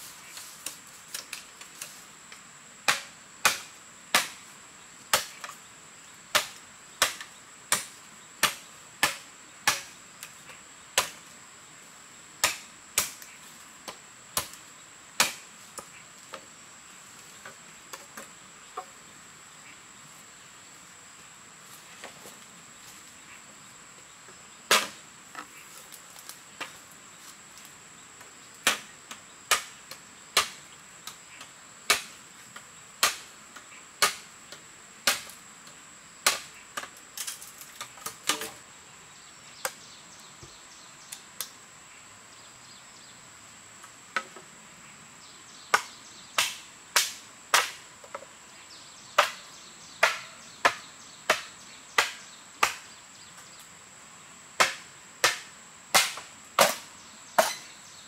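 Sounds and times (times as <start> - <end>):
machete cracking bamboo: 2.9 - 4.4, 5.1 - 5.6, 6.4 - 10.4, 12.4 - 13.3, 15.2 - 15.4, 24.7 - 25.0, 31.9 - 32.2, 33.0 - 33.3, 34.0 - 34.3, 35.0 - 35.4, 36.2 - 38.6, 45.7 - 47.8, 50.0 - 52.8, 54.6 - 57.7.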